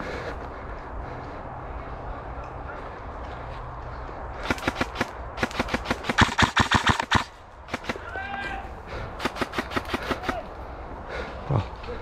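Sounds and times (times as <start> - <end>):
footsteps on dirt trail: 0.0 - 5.2
steady low rumble: 0.0 - 6.1.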